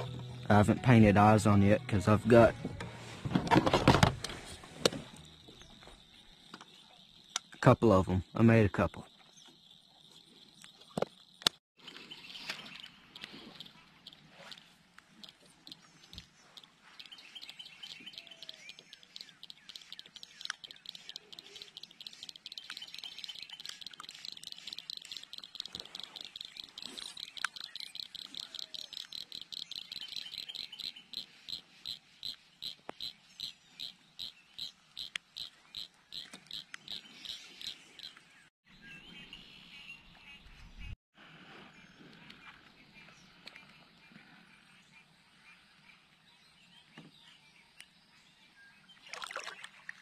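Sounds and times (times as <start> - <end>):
high-pitched clicking calls: 12.4 - 38.3.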